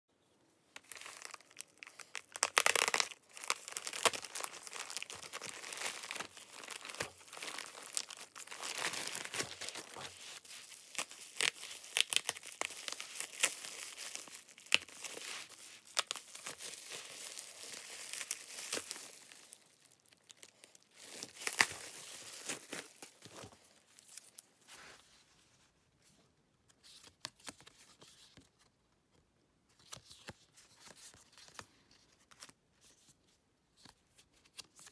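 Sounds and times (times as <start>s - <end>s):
plastic tearing: 0.8s - 23.6s
plastic packaging crinkling: 0.8s - 24.4s.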